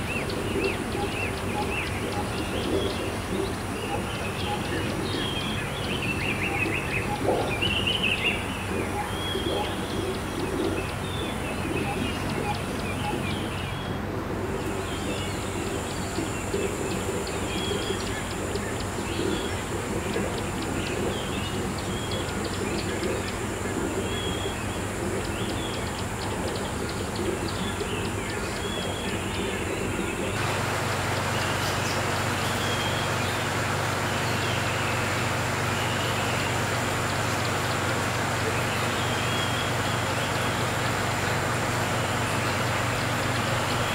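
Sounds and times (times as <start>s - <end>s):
aquarium air pump hum: 0.0s - 43.9s
bubbling water hiss: 0.0s - 43.9s
small birds chirping: 0.0s - 43.9s.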